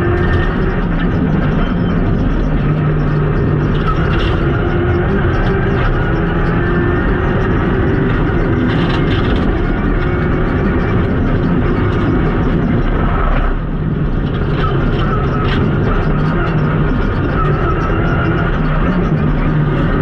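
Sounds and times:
car engine running hard: 0.0 - 20.0
road and tyre noise: 0.0 - 20.0.

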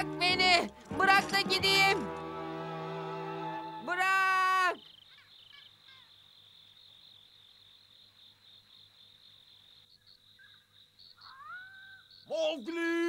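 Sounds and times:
crickets chirping: 4.5 - 13.0.

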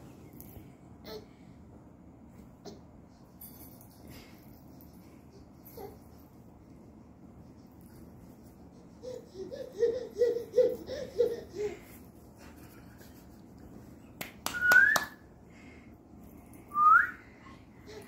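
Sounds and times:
high whistle: 14.5 - 15.2, 16.7 - 17.2.

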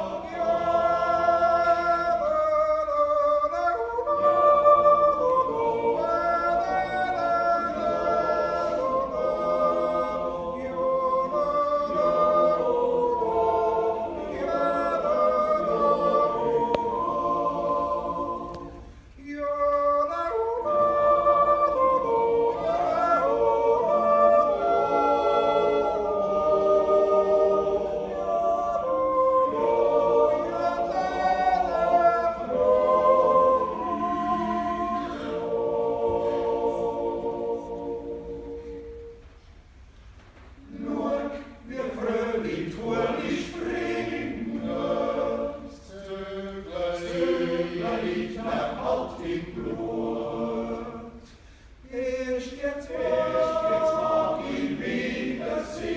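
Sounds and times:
male choir singing a cappella: 0.0 - 39.2, 40.6 - 55.9.

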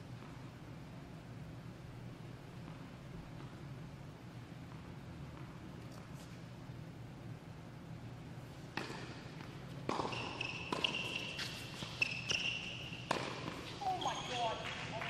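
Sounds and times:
tennis racket hitting ball: 8.7 - 14.8
sneakers squeaking on court: 8.8 - 15.0.

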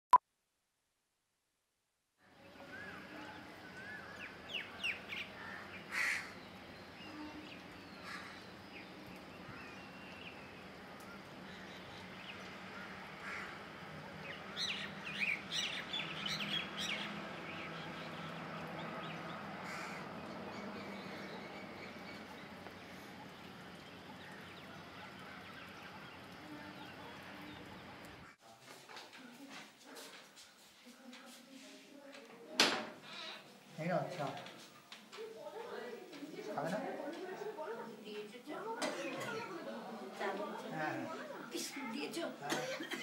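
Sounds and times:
outdoor background hum: 2.4 - 28.3
birds chirping: 2.4 - 28.4.

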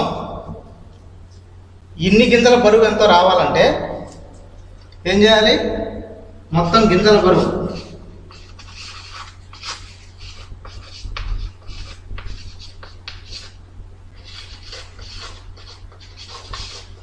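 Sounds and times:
steady low hum: 0.0 - 17.0
chalk scratching on blackboard: 7.3 - 13.6, 14.2 - 17.0.

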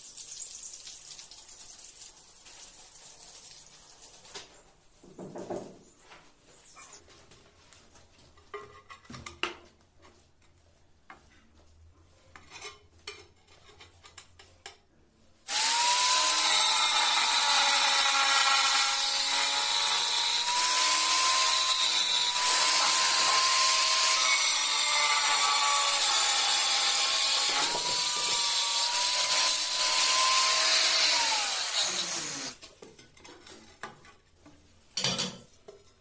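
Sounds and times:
angle grinder cutting tile: 15.5 - 32.6.

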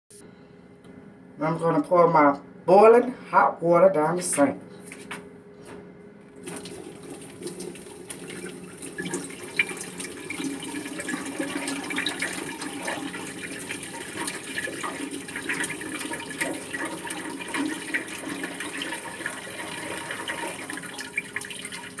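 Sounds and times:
water pouring into sink: 6.4 - 22.0.

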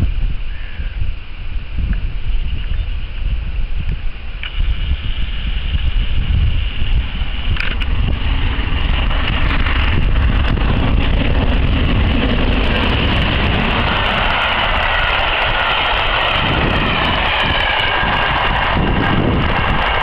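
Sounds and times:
wheels running on rails: 4.5 - 20.0
steam locomotive passing: 4.6 - 20.0.

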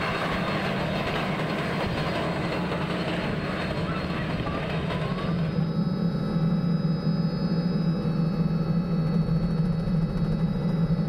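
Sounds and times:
helicopter drone from cabin: 0.0 - 11.0
faint high whine: 3.3 - 11.0.

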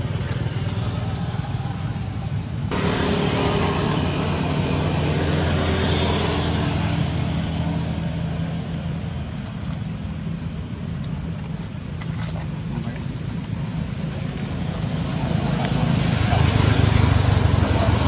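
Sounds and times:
vehicle engine passing: 0.0 - 9.8, 14.0 - 18.0.

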